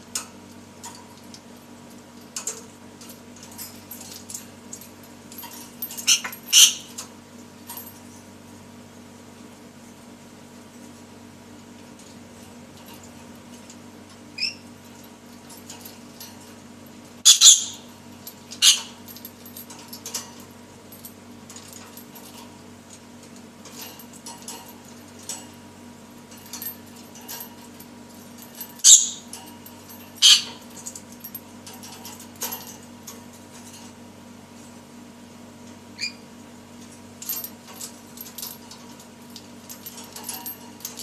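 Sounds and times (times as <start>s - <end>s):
bird chirp: 17.3s - 17.8s, 28.8s - 29.2s
parrot screeching: 17.3s - 17.8s, 28.8s - 29.2s.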